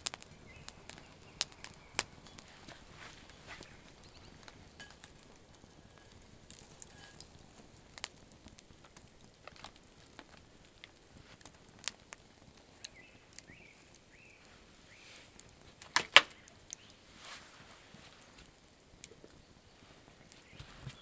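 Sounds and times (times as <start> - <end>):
sharp clicks and snaps: 15.4 - 17.0.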